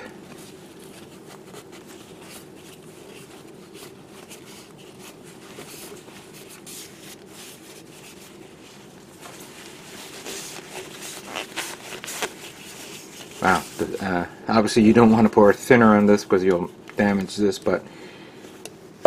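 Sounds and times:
paper towel rustling on plastic bottle: 0:00.0 - 0:14.2
steady low hum: 0:00.0 - 0:19.0.

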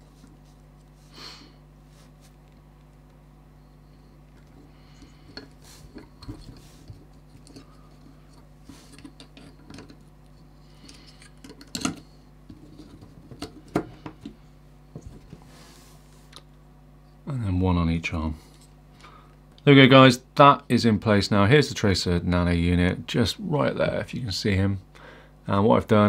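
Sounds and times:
low steady hum: 0:00.0 - 0:26.0.

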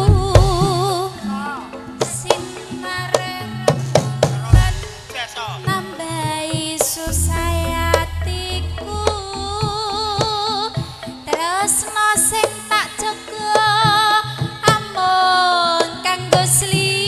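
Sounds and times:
woman singing with vibrato: 0:00.0 - 0:04.0, 0:05.7 - 0:17.0
gamelan ensemble: 0:00.0 - 0:17.0
hand drum strokes: 0:07.0 - 0:11.5.

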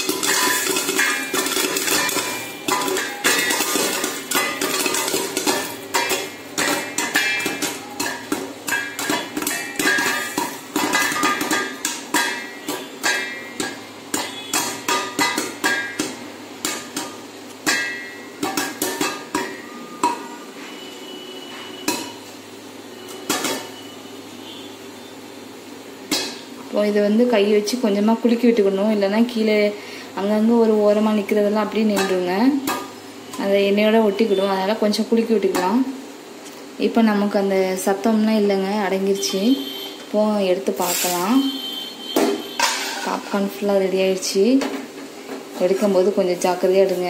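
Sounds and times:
popcorn popping: 0:00.0 - 0:22.3
steady hum: 0:00.0 - 0:47.0.

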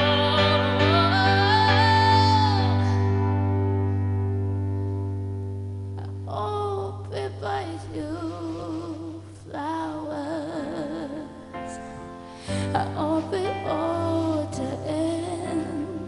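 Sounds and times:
woman singing a pop ballad: 0:00.0 - 0:03.4, 0:06.0 - 0:11.8, 0:12.4 - 0:16.0.

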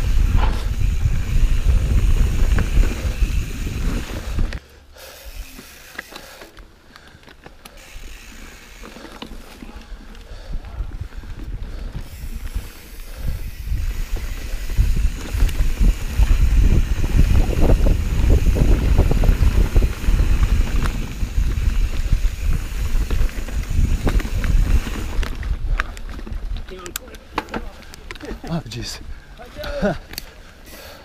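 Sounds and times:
wind buffeting microphone: 0:00.0 - 0:04.6, 0:10.0 - 0:26.7
bike tyres rolling and rattling: 0:00.0 - 0:31.0.

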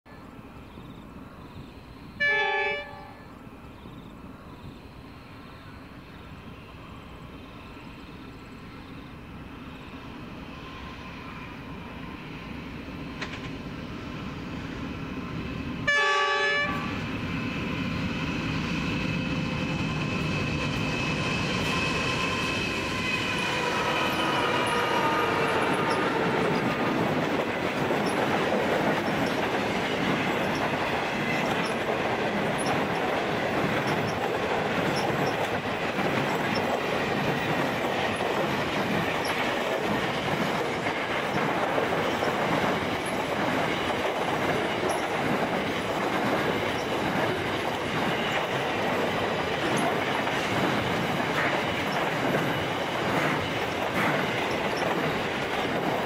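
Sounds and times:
train horn blasts: 0:02.2 - 0:03.3, 0:15.8 - 0:16.9, 0:21.6 - 0:26.9
locomotive engine noise: 0:08.6 - 0:56.0
wheels clacking on rails: 0:10.8 - 0:56.0.

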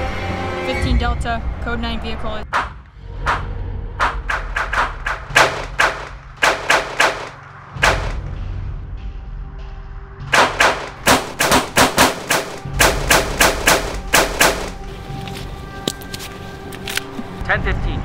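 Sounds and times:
pistol gunfire: 0:04.3 - 0:08.2, 0:10.3 - 0:14.8.

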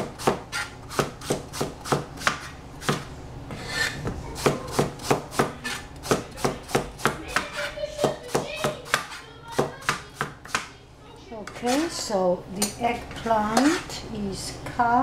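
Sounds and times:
cleaver chopping on plastic board: 0:00.0 - 0:03.1, 0:04.4 - 0:10.7.

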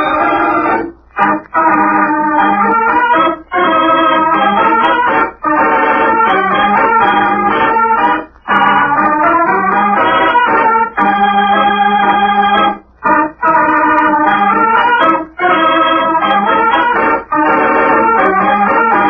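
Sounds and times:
organ chords: 0:00.0 - 0:19.0.

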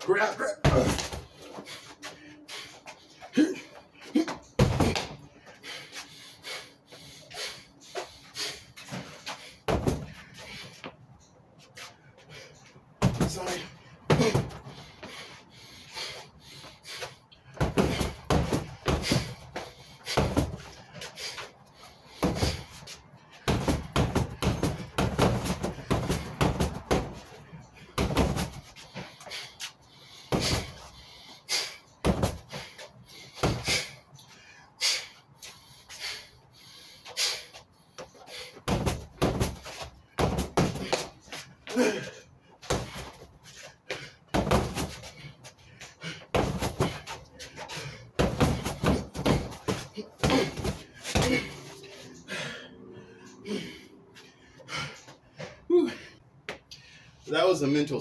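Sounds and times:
punches hitting a punching bag: 0:00.6 - 0:01.2, 0:04.6 - 0:05.2, 0:09.7 - 0:10.2, 0:13.0 - 0:14.6, 0:17.5 - 0:20.7, 0:22.2 - 0:22.7, 0:23.4 - 0:27.3, 0:27.9 - 0:28.7, 0:30.3 - 0:30.8, 0:32.0 - 0:32.6, 0:33.4 - 0:33.9, 0:38.6 - 0:41.1, 0:42.6 - 0:43.2, 0:44.3 - 0:45.2, 0:46.3 - 0:47.2, 0:48.2 - 0:51.6.

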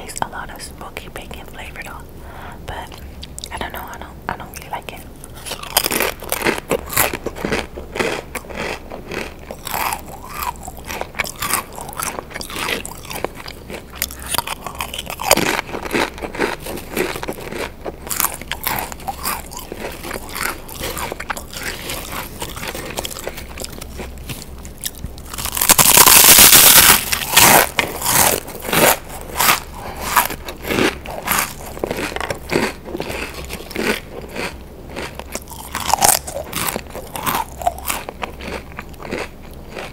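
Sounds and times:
crisps crunching: 0:05.2 - 0:39.9
loud crackling: 0:18.1 - 0:32.1.

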